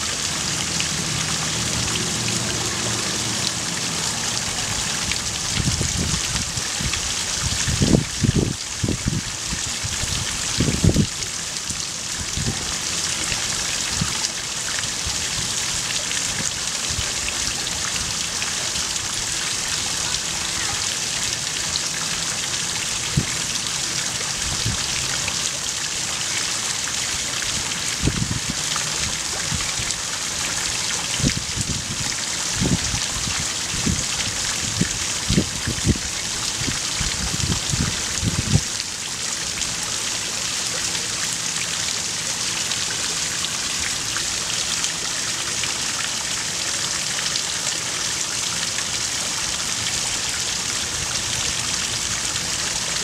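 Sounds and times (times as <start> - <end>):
fountain water splashing: 0.0 - 53.0.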